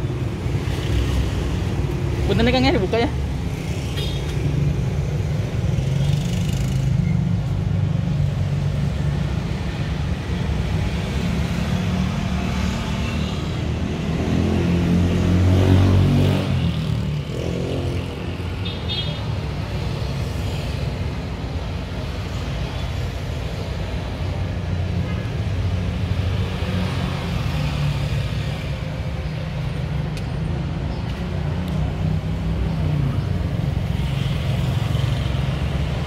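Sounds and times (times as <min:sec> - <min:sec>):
road traffic engine rumble: 0:00.0 - 0:36.0.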